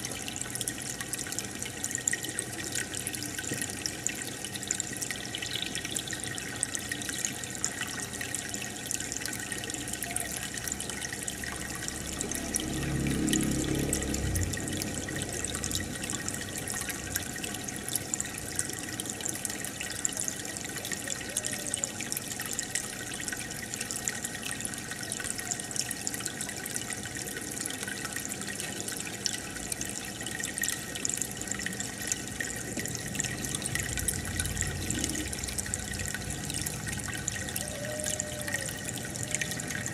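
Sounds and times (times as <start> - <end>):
aquarium water bubbling: 0.0 - 39.9
low rumble: 11.3 - 17.8, 33.0 - 37.5.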